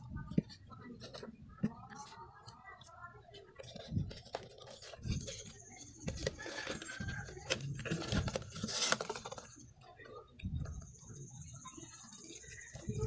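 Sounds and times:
plastic knocking and scraping: 0.0 - 2.6, 3.3 - 9.7.

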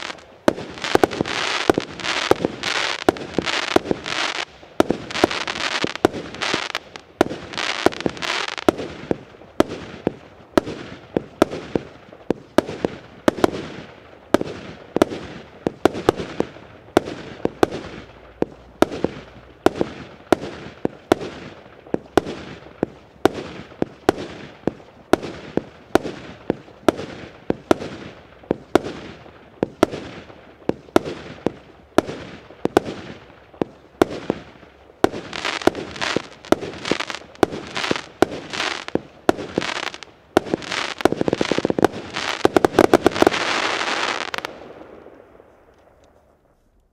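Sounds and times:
fireworks bangs: 0.0 - 46.6
fireworks shells bursting: 35.1 - 44.5.

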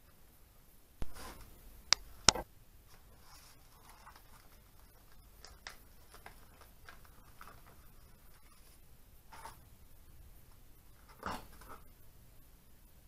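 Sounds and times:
rustling of paper and plastic bags: 2.9 - 9.6.

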